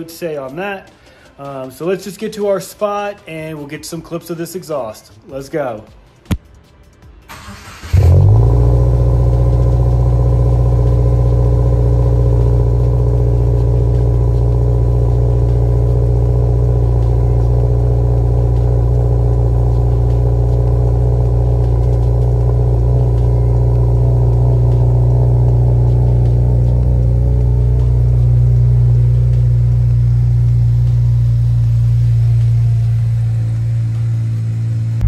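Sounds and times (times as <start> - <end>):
car engine idling: 7.3 - 35.0
car starter cranking: 7.3 - 35.0.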